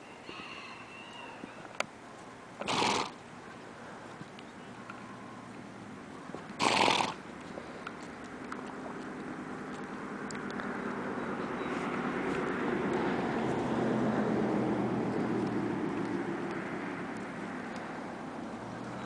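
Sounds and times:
horse snorting: 2.6s - 3.2s, 6.6s - 7.2s.

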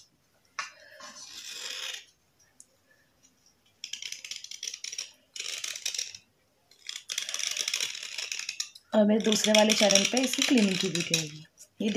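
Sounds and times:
knife blade scraping: 1.0s - 2.1s, 6.8s - 11.4s.

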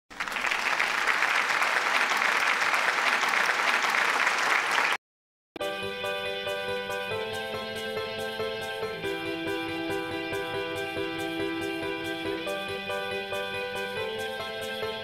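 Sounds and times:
crowd applause: 0.1s - 5.0s
music with sustained notes: 5.6s - 15.0s.

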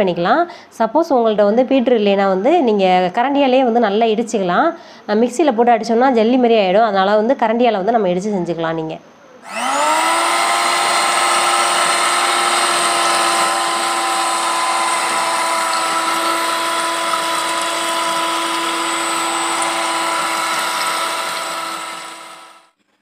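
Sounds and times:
electric hand mixer whining: 9.4s - 22.7s.

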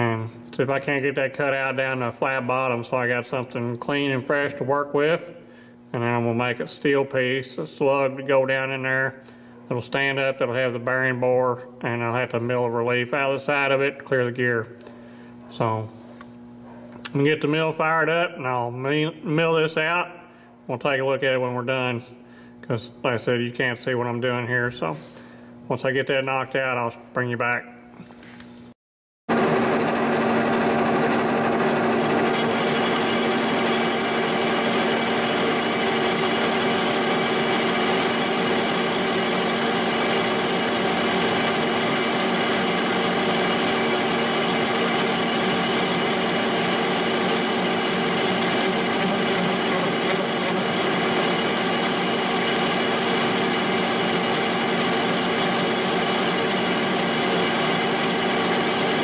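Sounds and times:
machine hum: 29.3s - 59.0s
milling cutter cutting metal: 29.3s - 59.0s.

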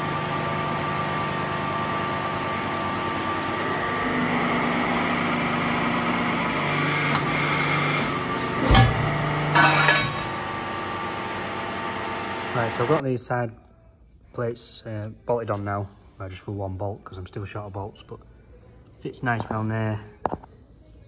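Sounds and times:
hydraulic press machine hum: 0.0s - 13.0s.

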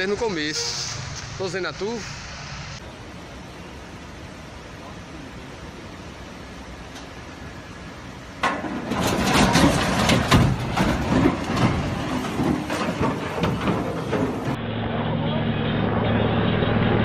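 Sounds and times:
knocks bangs and rumbling: 8.4s - 14.6s
heavy crash: 8.4s - 14.7s.

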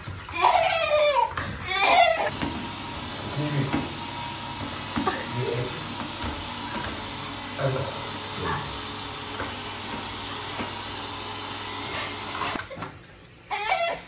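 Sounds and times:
robot vacuum cleaner running: 2.3s - 12.7s.

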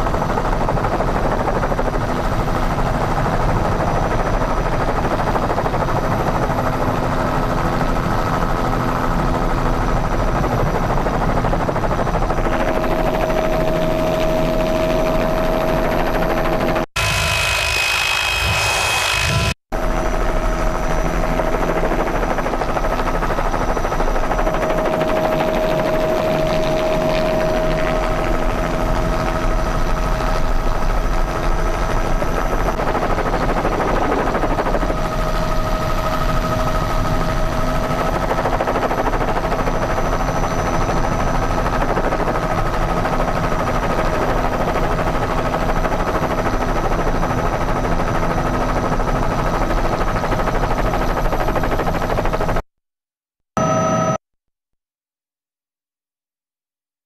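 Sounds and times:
helicopter cabin drone: 0.0s - 52.6s, 53.6s - 54.2s
higher-pitched engine noise: 12.3s - 21.3s.

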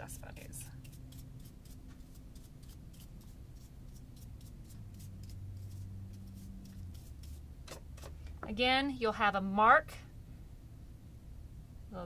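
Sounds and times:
low steady hum: 0.0s - 12.0s
brush scratching: 0.2s - 8.2s.

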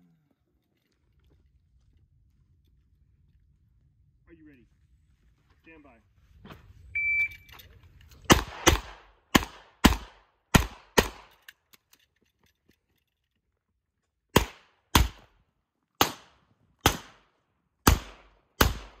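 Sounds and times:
handgun shots with echo: 8.2s - 11.4s, 14.3s - 15.3s, 16.0s - 17.2s, 17.8s - 19.0s.

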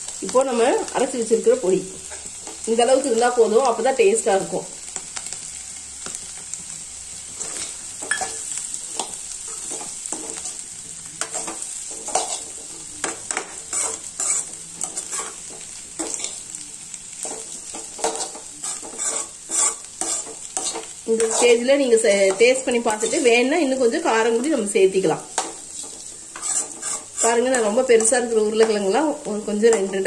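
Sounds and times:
potatoes sizzling in oil: 0.0s - 30.0s
metal spatula scraping pan: 11.2s - 12.7s, 13.3s - 16.4s, 17.2s - 21.6s, 22.3s - 23.5s, 25.3s - 28.4s.

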